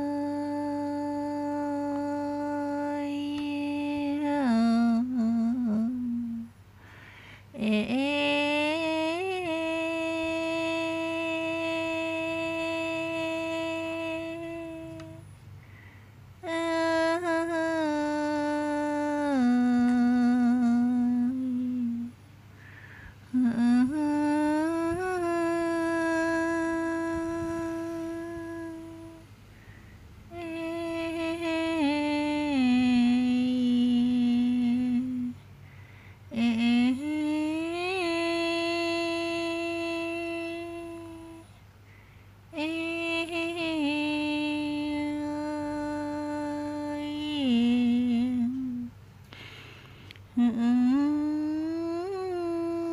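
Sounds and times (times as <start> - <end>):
person humming a lullaby: 0.0 - 41.7, 42.5 - 52.9.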